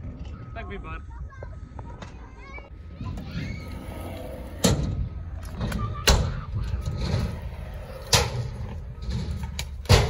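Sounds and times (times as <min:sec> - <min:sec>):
wheels rolling on concrete: 0:00.0 - 0:10.0
skateboard landing impacts: 0:09.3 - 0:10.0.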